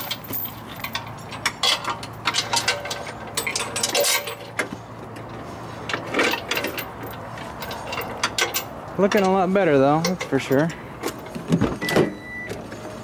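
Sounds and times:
chains and hooks clinking: 0:00.0 - 0:04.5, 0:06.1 - 0:10.8.

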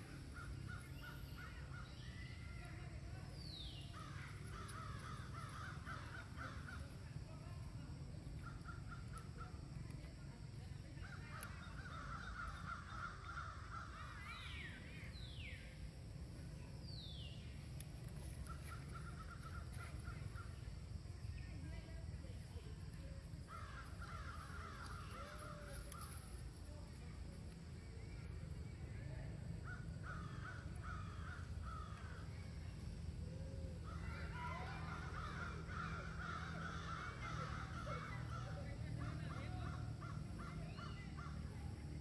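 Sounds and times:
crows cawing: 0:04.0 - 0:06.9, 0:11.4 - 0:14.4, 0:23.5 - 0:26.2, 0:29.7 - 0:32.2, 0:33.9 - 0:41.4.

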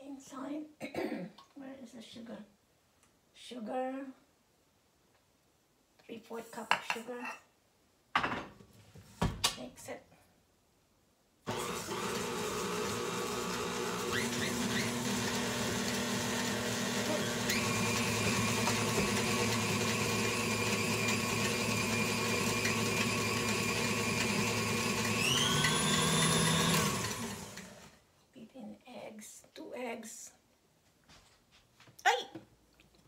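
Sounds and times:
stand mixer running: 0:11.5 - 0:27.9.

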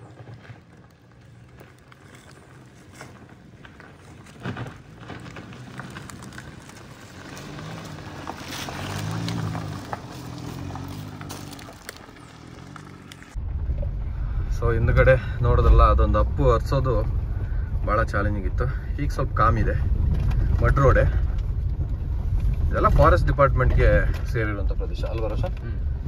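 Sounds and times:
knocks and rattles over stones: 0:00.0 - 0:13.4
car engine labouring: 0:00.0 - 0:26.0.

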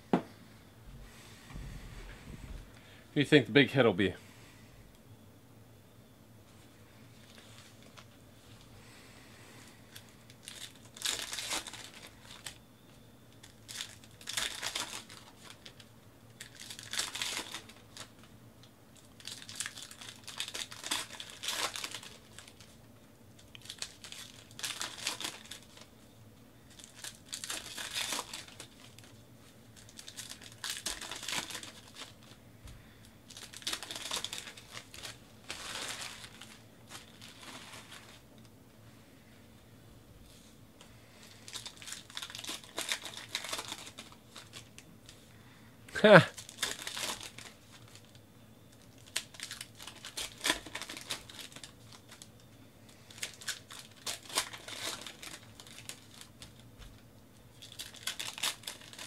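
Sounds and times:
card pack wrappers tearing: 0:09.9 - 0:12.6, 0:13.4 - 0:18.3, 0:19.0 - 0:22.8, 0:23.4 - 0:25.9, 0:26.7 - 0:32.4, 0:33.3 - 0:38.2, 0:41.2 - 0:44.9, 0:46.3 - 0:52.4, 0:53.1 - 0:56.6, 0:57.6 - 0:59.0.

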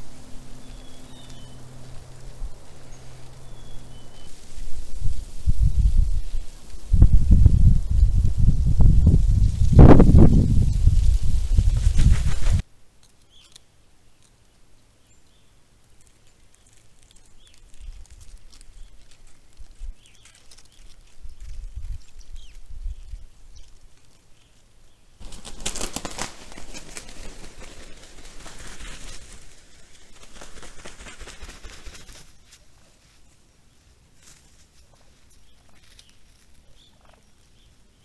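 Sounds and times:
faint low rumble: 0:00.0 - 0:12.6
turkeys rustling in snow: 0:00.0 - 0:12.7, 0:15.1 - 0:38.0.

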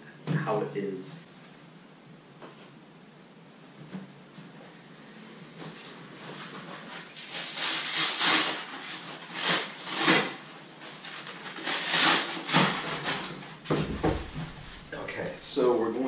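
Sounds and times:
polystyrene foam scraping and rustling: 0:05.7 - 0:15.5
dull thump: 0:13.7 - 0:15.2.

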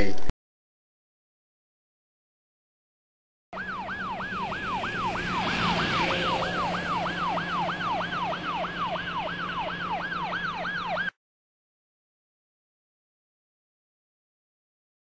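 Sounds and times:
police siren yelping: 0:03.6 - 0:11.2.

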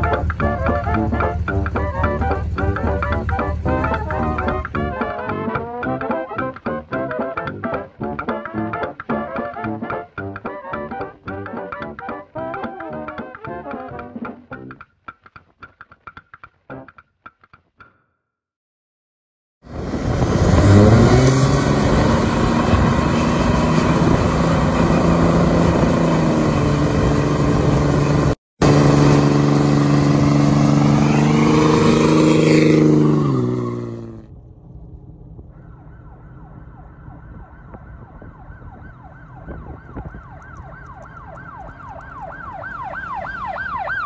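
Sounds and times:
diesel truck engine revving: 0:00.0 - 0:07.2, 0:19.7 - 0:34.3
siren wailing: 0:35.5 - 0:44.0.

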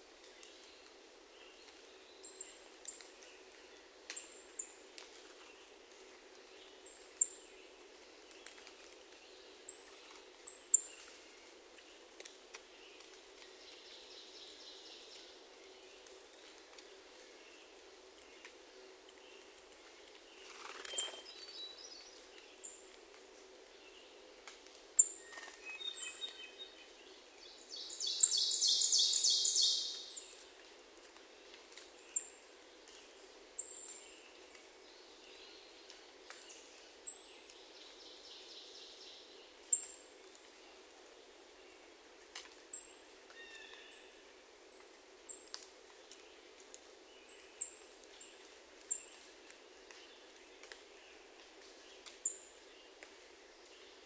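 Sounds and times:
faint background hum: 0:00.0 - 0:54.0
birds singing: 0:12.9 - 0:15.4, 0:27.7 - 0:30.3.

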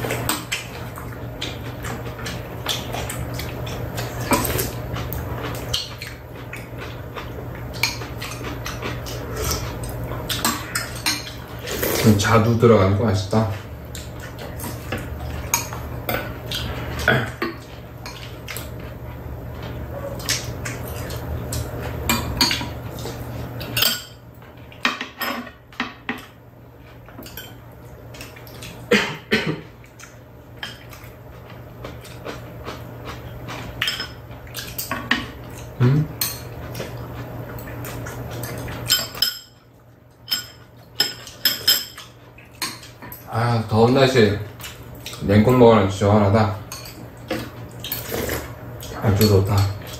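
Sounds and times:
utensils clinking against bowls: 0:06.8 - 0:11.5, 0:19.6 - 0:24.2, 0:24.8 - 0:26.4, 0:33.4 - 0:36.9, 0:37.6 - 0:45.6, 0:46.6 - 0:48.1, 0:48.8 - 0:49.9.

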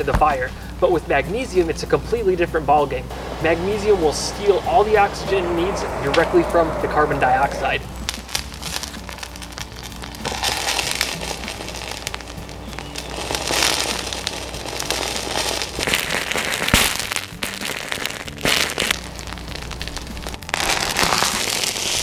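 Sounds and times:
burning metal crackling and popping: 0:03.0 - 0:22.0
sputtering: 0:03.1 - 0:08.5.

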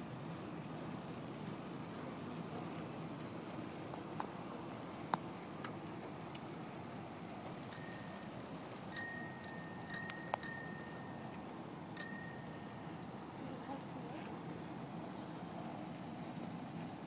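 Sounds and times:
bicycle bell ringing: 0:07.7 - 0:11.4, 0:12.0 - 0:13.2.

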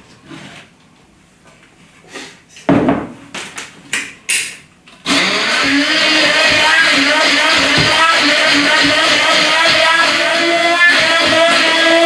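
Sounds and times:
immersion blender humming: 0:05.0 - 0:12.0.

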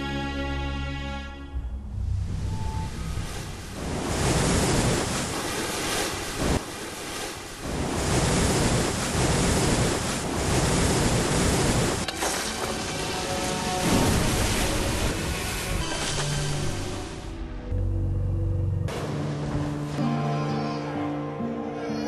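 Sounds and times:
wind: 0:01.6 - 0:20.0
storm surf: 0:01.7 - 0:12.1, 0:12.8 - 0:17.5
rushing floodwater: 0:02.7 - 0:17.3.

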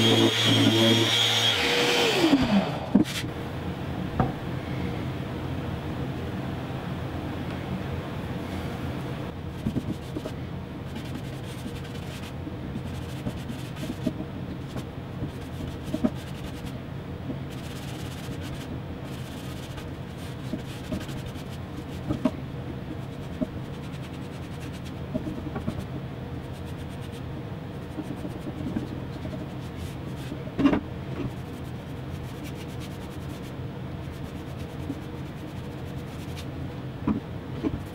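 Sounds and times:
steady low hum: 0:00.0 - 0:37.9
paintbrush scratchy rubbing: 0:10.9 - 0:16.8, 0:17.5 - 0:22.1, 0:23.0 - 0:25.0, 0:26.4 - 0:30.4, 0:31.3 - 0:36.5.

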